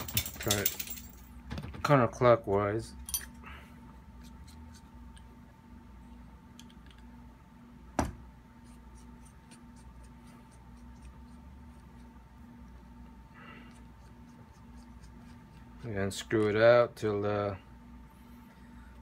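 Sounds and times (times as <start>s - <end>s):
metal parts clicking: 0.0s - 1.2s.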